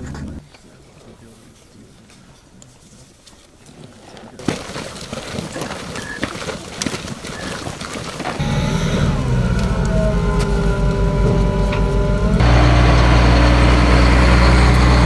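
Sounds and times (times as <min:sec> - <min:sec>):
vehicle engine rumble: 0:08.4 - 0:15.0.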